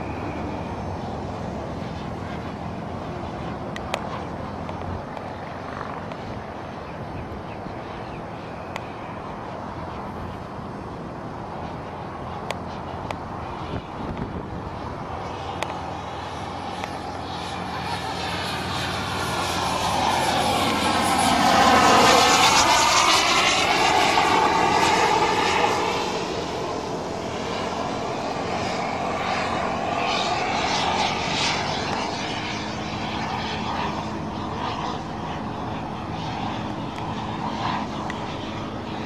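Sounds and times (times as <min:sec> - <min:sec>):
model jet flying past: 0:00.0 - 0:39.0.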